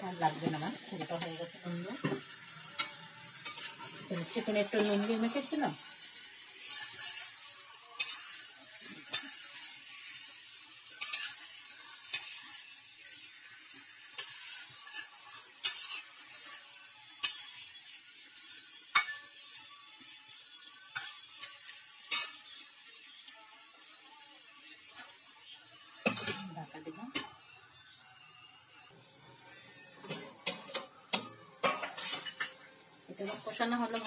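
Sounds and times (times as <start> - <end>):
food sizzling in oil: 0.0 - 34.0
metal spatula scraping a pan: 0.1 - 24.0, 24.8 - 27.4, 29.0 - 34.0.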